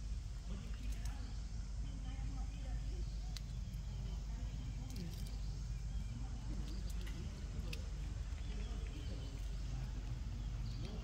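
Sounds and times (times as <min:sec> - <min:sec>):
low outdoor rumble: 0:00.0 - 0:11.0
faint high chirps and clicks: 0:03.2 - 0:11.0.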